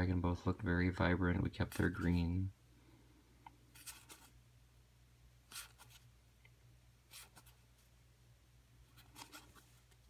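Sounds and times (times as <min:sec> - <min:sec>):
faint low hum: 0:00.0 - 0:10.0
cards flipping and swishing: 0:09.0 - 0:10.0.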